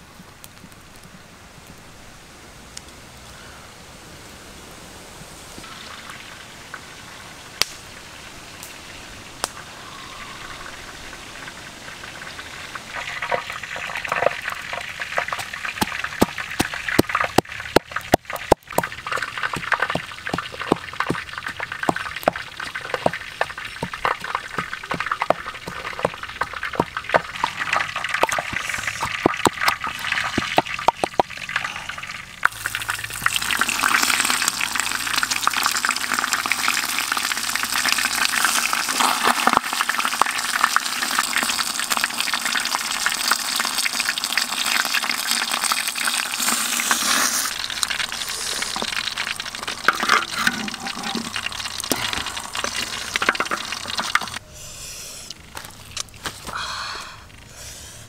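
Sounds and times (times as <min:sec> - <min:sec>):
water boiling hard: 0:05.6 - 0:54.4
wooden pestle knocking in mortar: 0:18.1 - 0:27.4.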